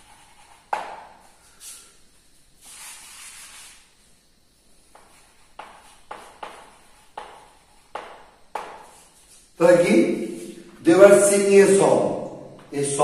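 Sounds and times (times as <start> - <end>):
chalk tapping on blackboard: 0.0 - 1.3, 4.9 - 9.5
chalk scratching on blackboard: 0.0 - 1.9, 2.6 - 4.0, 4.9 - 9.5.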